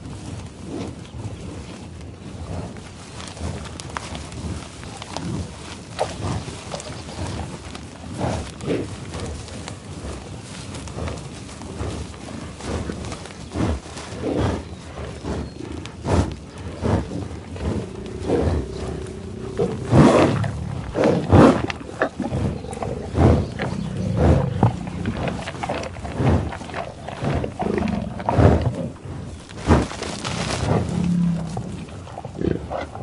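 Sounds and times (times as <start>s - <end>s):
buffalo snuffling breaths: 0.0s - 33.0s
grass rustling and tearing: 1.6s - 32.9s
buffalo low grunts: 4.4s - 33.0s.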